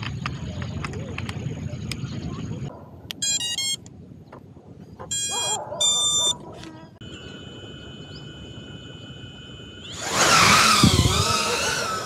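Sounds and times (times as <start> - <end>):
short electronic beeps: 3.2 - 3.8, 5.1 - 6.4
drone motors idle whine: 7.0 - 12.0.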